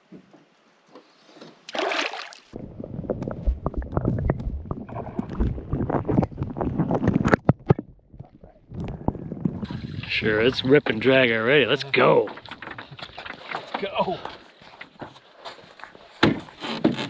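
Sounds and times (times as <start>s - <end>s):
splash into water: 1.7s - 2.6s, 9.6s - 10.4s
small underwater clicks and knocks: 3.0s - 9.6s, 12.2s - 13.9s.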